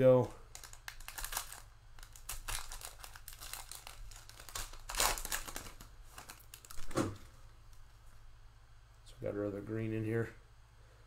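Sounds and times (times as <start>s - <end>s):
wrapper crinkling and tearing: 0.4s - 6.9s.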